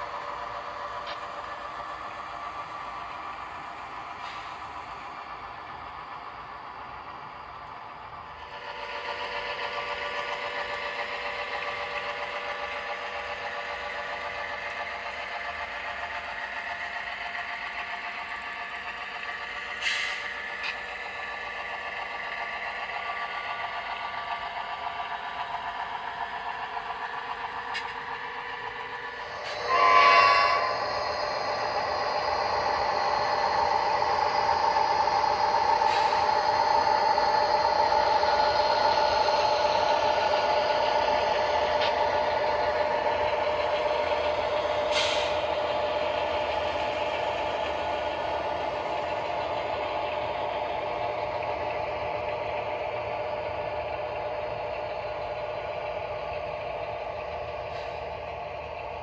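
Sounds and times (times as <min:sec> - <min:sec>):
model locomotive engine drone: 0:00.0 - 0:59.0
locomotive horn blast: 0:29.5 - 0:30.8.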